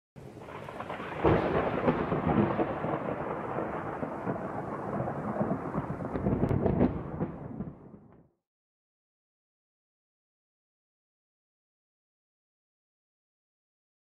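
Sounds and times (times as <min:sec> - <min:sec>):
thunder-like rumbling: 0:00.2 - 0:08.2.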